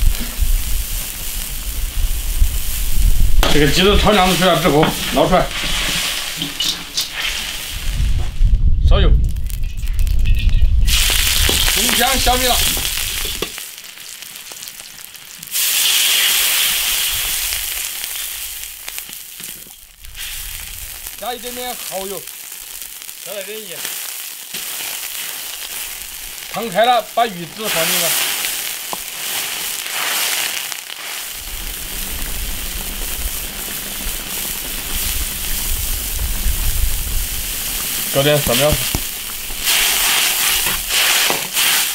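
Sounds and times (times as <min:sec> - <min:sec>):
vegetables frying in oil: 0:00.0 - 0:08.3, 0:09.3 - 0:41.9
loud sizzle of liquid in oil: 0:00.0 - 0:08.6, 0:09.2 - 0:41.9
low rumble: 0:07.7 - 0:11.8.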